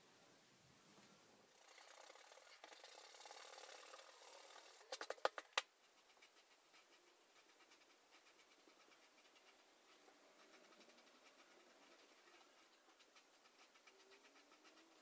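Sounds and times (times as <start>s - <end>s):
marker scratching on paper: 5.8s - 15.0s
eraser rubbing on paper: 6.0s - 15.0s.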